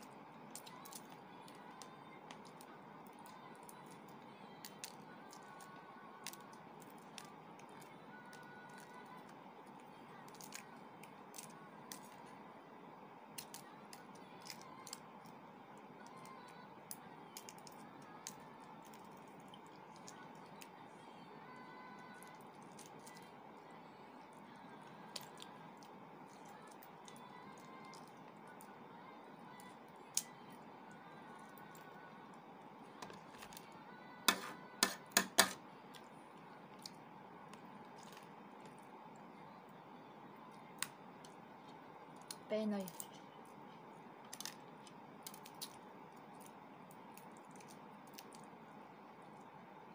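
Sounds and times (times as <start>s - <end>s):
eggshell crackling as peeled: 44.2s - 48.6s.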